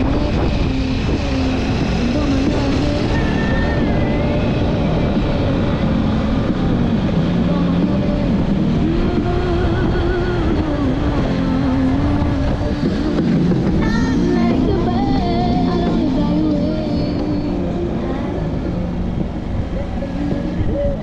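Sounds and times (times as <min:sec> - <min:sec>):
motorcycle engine running: 0:00.0 - 0:21.0
road noise rumble: 0:00.0 - 0:21.0.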